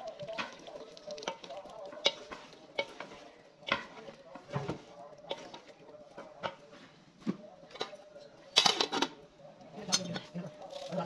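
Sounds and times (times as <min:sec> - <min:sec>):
ladle scraping a metal pot: 0:00.2 - 0:05.8.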